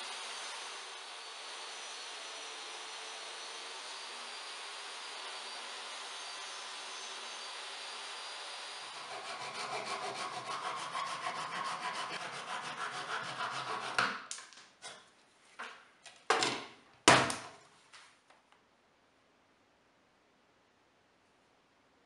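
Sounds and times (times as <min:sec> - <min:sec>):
hand saw cutting wood: 0:00.0 - 0:15.1.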